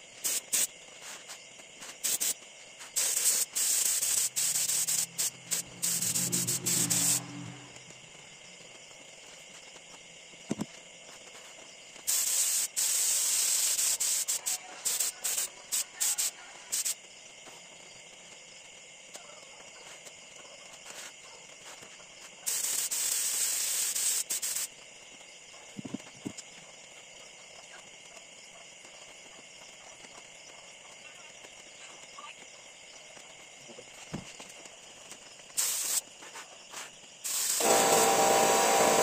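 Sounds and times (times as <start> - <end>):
spray gun hissing air: 0.2 - 1.2, 2.0 - 7.6, 12.1 - 15.5, 22.5 - 24.7, 35.6 - 36.0, 37.2 - 39.0.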